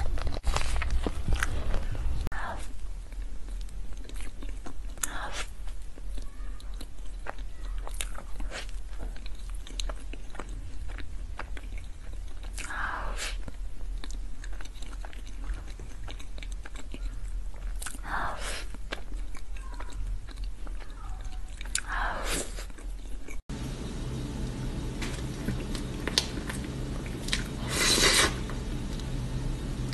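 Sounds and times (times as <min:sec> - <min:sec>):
wet chewing: 0:00.0 - 0:23.5, 0:24.4 - 0:29.2
lip smacks and mouth clicks: 0:18.7 - 0:23.4
low hum: 0:23.5 - 0:29.9.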